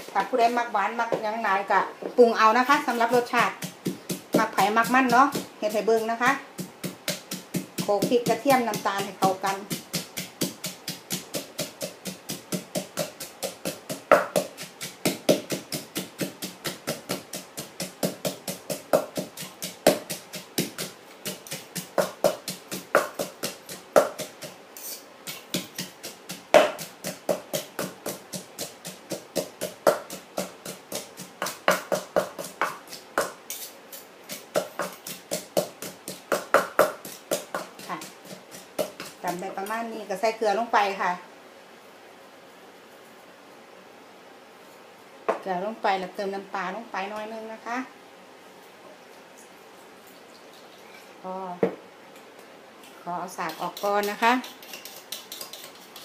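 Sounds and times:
pestle pounding in mortar: 2.8s - 39.7s, 53.4s - 56.0s.

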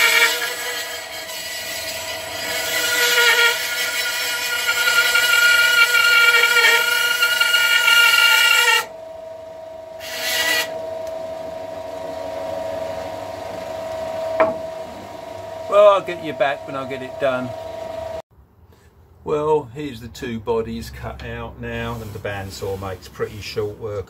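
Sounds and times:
bandsaw rasping through wood: 0.0s - 8.9s, 10.0s - 10.7s
bandsaw whine: 0.0s - 18.2s.

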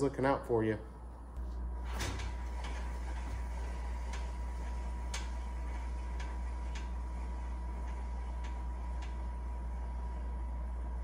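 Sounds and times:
spinning wheel low hum: 1.8s - 11.0s
wheel ticking: 2.4s - 9.5s.

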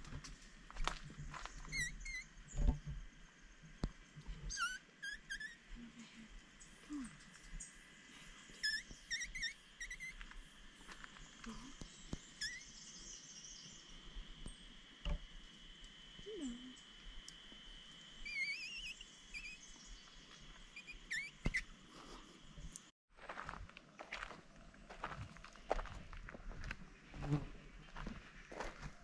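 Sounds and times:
wild birds chirping: 18.0s - 22.8s.

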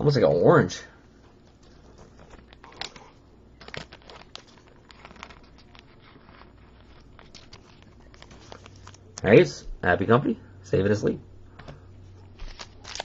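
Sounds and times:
card packaging rustling and crinkling: 1.5s - 9.1s, 12.3s - 13.0s.

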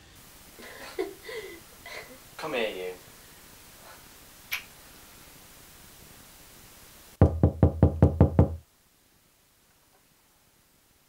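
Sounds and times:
knocking on a door: 7.2s - 8.6s.

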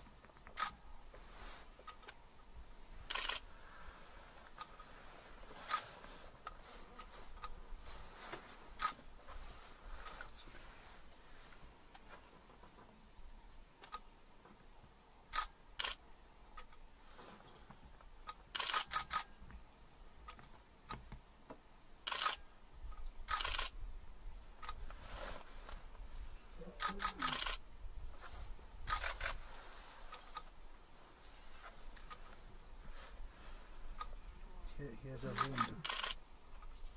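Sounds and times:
camera shutters clicking: 0.5s - 0.8s, 3.1s - 3.4s, 15.3s - 16.0s, 18.5s - 19.2s, 22.0s - 22.4s, 23.3s - 23.7s, 26.8s - 27.6s, 28.9s - 29.4s, 35.3s - 36.2s.

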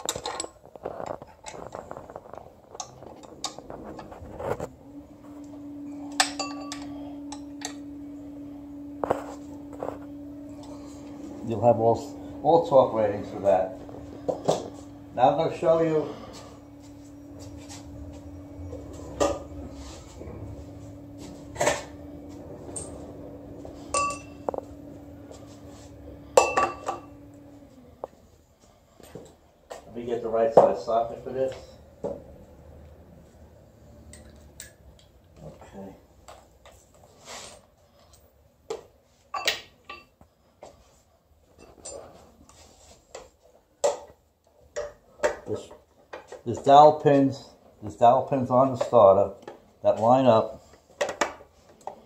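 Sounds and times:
metal parts clinking and knocking: 0.0s - 2.0s
steady low hum: 0.3s - 38.7s
metal tools clanking: 6.0s - 7.8s, 23.8s - 24.7s.

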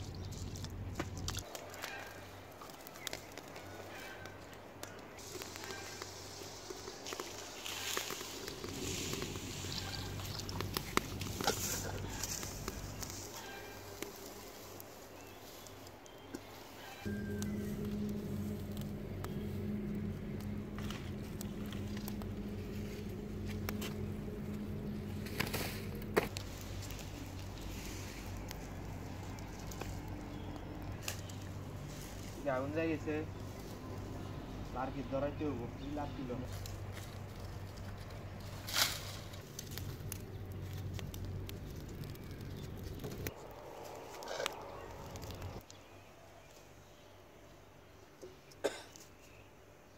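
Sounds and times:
low steady rumble: 0.0s - 1.5s, 5.2s - 14.2s, 17.0s - 45.6s
straw fire crackling: 0.0s - 45.9s
low motor hum: 7.9s - 13.4s, 17.0s - 45.6s.

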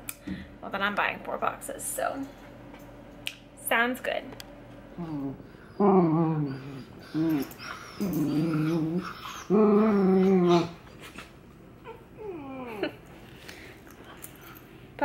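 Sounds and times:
puppies whining: 4.9s - 11.1s, 11.8s - 13.0s
puppies growling: 4.9s - 13.3s.

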